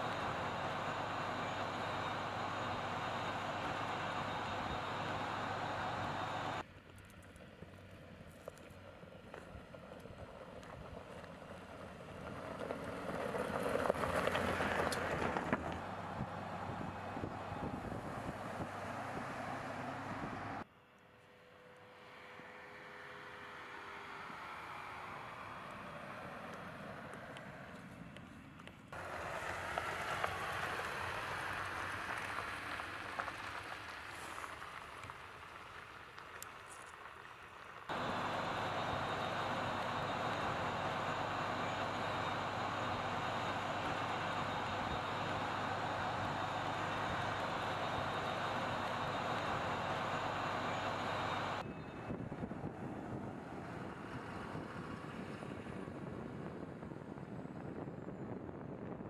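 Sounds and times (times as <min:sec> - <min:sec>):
tyres crunching on gravel: 0:27.7 - 0:51.5.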